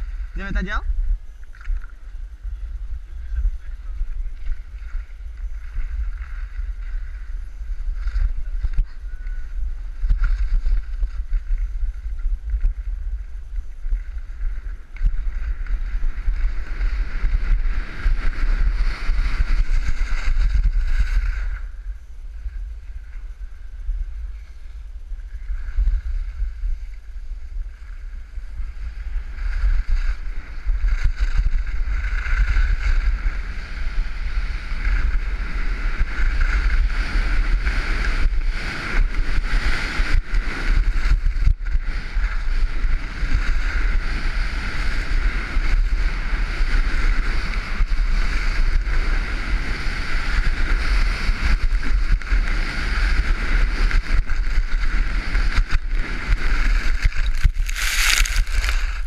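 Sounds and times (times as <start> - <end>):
wind buffeting microphone: 0.0 - 59.0
skis hissing over snow: 56.6 - 59.0.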